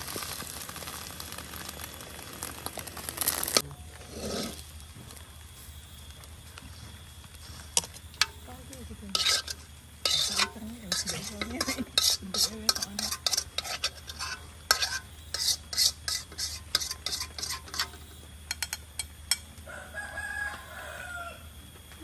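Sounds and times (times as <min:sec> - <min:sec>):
metal utensil scraping a wok: 0:03.1 - 0:04.6, 0:09.1 - 0:19.4.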